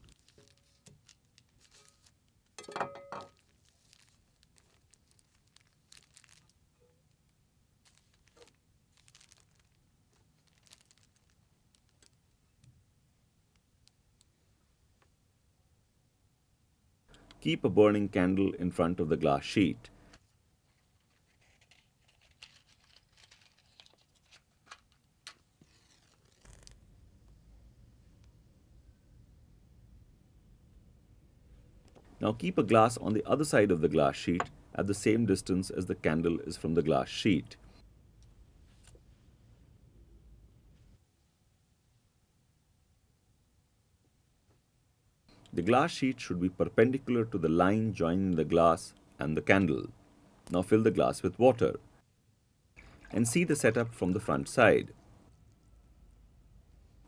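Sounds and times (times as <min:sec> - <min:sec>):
paper crinkling: 0:00.0 - 0:02.6, 0:03.3 - 0:12.4, 0:20.0 - 0:26.8.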